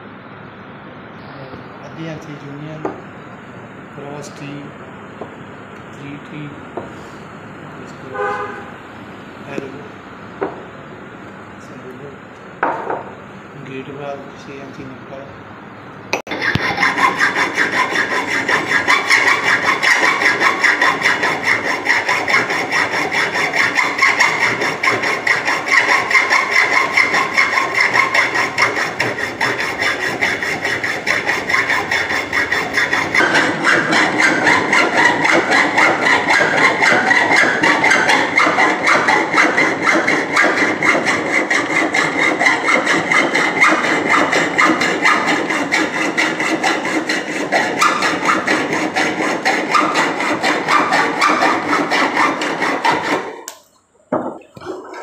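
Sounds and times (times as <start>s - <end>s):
hand tool rasping steel pipe: 16.3s - 53.6s.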